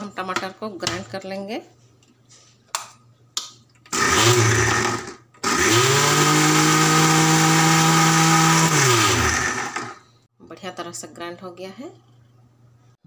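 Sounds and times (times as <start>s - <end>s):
mixer grinder whining: 3.9s - 10.0s.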